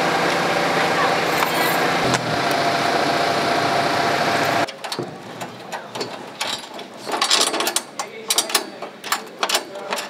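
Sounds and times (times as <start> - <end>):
loud motor running: 0.0 - 4.7.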